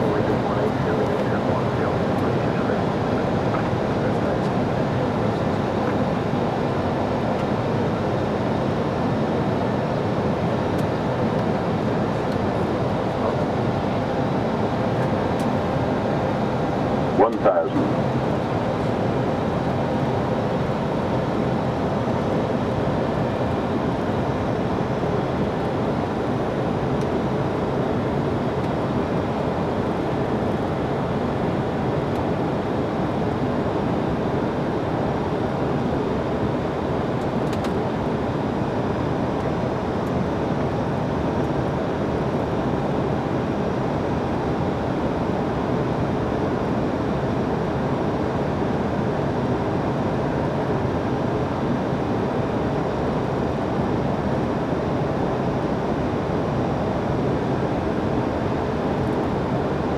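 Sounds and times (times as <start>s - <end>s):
aircraft engine noise: 0.0s - 59.9s
airflow rush in cockpit: 0.0s - 59.9s.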